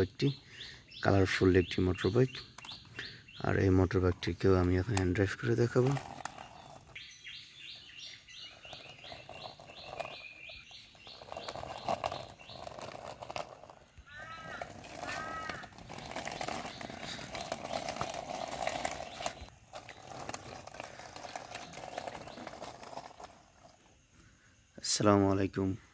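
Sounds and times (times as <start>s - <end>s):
arched bird calls: 0.2s - 3.7s, 6.3s - 13.4s, 14.0s - 19.5s
birds calling high notes: 14.0s - 18.1s.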